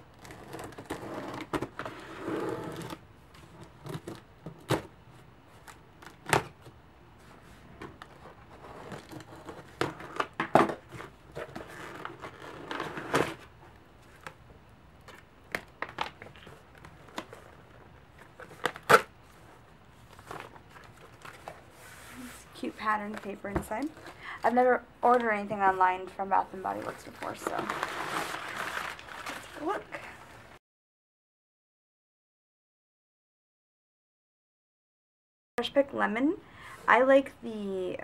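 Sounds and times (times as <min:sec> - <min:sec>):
paper crinkling: 0:26.6 - 0:30.2.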